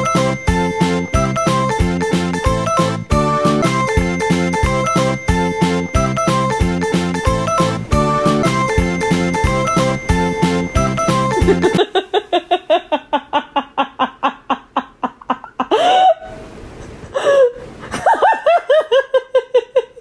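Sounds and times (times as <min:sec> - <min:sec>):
woman laughing: 0:11.3 - 0:16.4, 0:17.1 - 0:20.0
woman's drawn-out pitched cries: 0:15.4 - 0:16.4.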